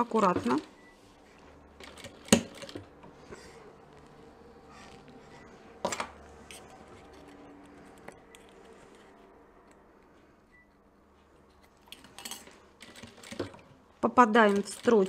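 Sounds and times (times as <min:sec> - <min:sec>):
fabric rustling: 0:00.2 - 0:09.3.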